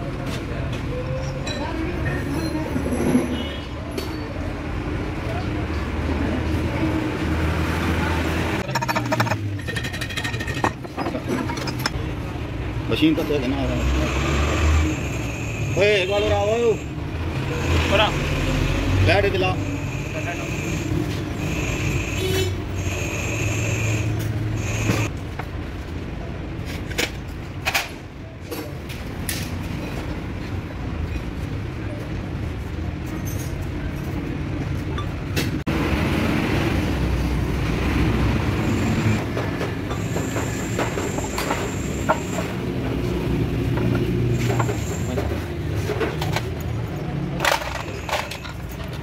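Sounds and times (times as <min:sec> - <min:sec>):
vehicle engine humming: 0:06.2 - 0:26.0
metal tool scraping metal: 0:08.6 - 0:12.0
machine hum with whine: 0:19.7 - 0:25.1.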